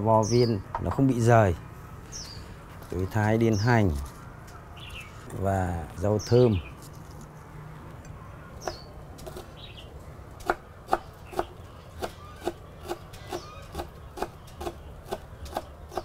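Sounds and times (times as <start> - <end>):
knife chopping on wooden board: 10.4 - 16.0.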